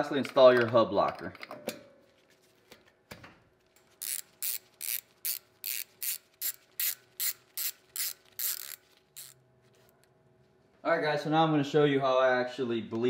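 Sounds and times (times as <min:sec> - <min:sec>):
hand ratchet clicking: 0:04.0 - 0:09.4.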